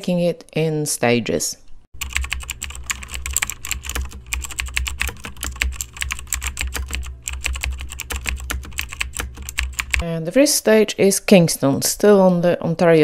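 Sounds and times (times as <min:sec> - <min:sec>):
low steady hum: 0:01.6 - 0:11.7
fast typing on keyboard: 0:02.0 - 0:10.0.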